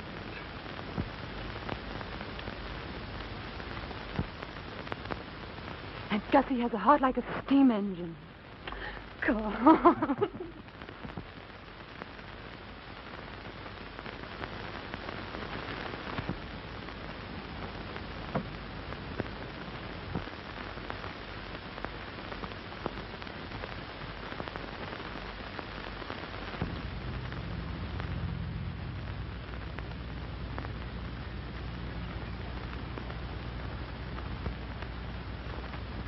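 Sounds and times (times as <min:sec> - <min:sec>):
crackles and pops: 0:00.0 - 0:36.0
film soundtrack hiss: 0:00.0 - 0:36.0
low hum: 0:26.5 - 0:36.0.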